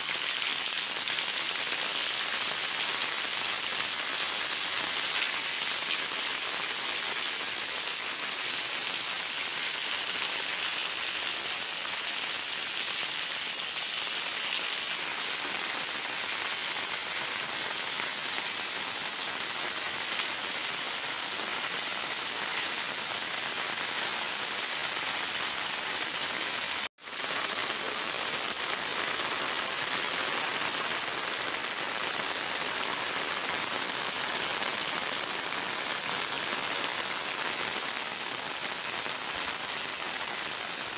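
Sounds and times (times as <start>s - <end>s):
rain on concrete and mud: 0.0s - 40.9s.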